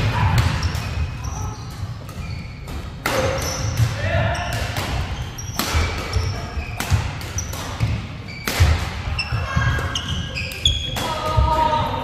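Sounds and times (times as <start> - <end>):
sneakers squeaking on court: 0.4 - 11.0
racket hitting shuttlecock: 2.0 - 9.1.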